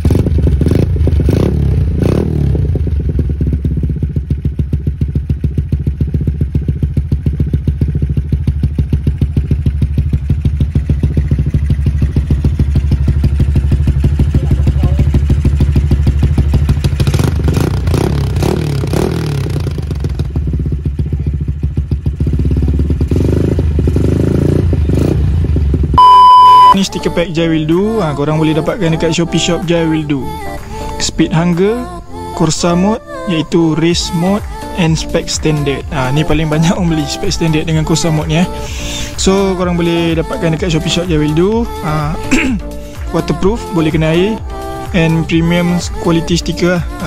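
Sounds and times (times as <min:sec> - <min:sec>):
motorcycle engine idling and revving: 0:00.0 - 0:31.8, 0:32.4 - 0:47.0.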